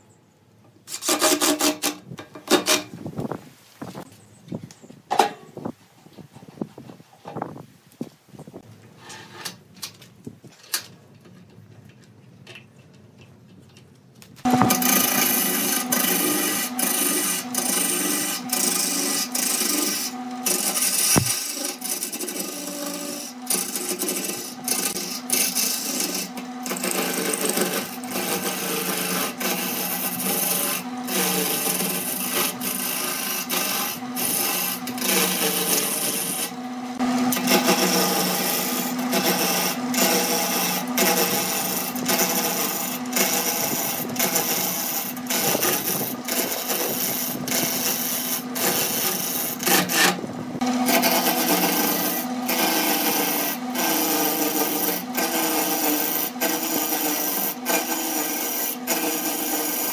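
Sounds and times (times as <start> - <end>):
chisel scraping wood: 14.4 - 36.6, 37.3 - 50.2, 50.8 - 59.9
lathe motor hum: 14.5 - 59.9.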